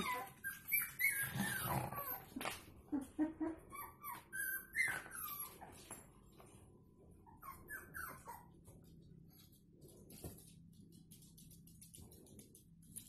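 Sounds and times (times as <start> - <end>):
dogs whimpering: 0.0 - 5.8, 7.2 - 8.6.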